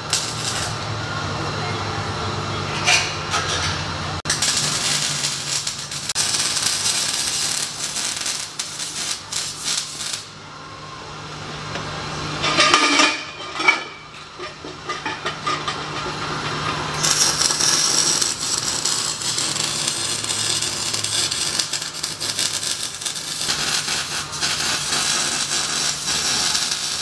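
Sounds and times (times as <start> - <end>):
arc welding crackling: 0.0 - 1.0, 4.2 - 10.4, 15.7 - 27.0
metal clanks: 12.4 - 16.8.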